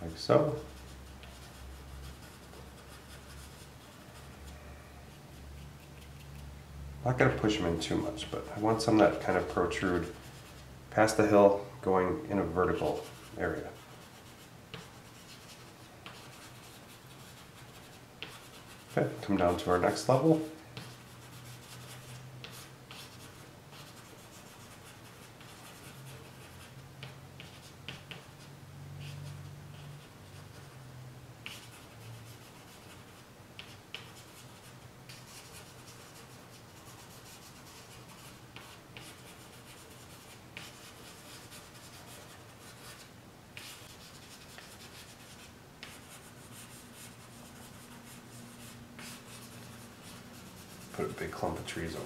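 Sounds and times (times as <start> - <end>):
charcoal scratching on paper: 0.4 - 6.5, 12.4 - 30.7, 31.4 - 52.0.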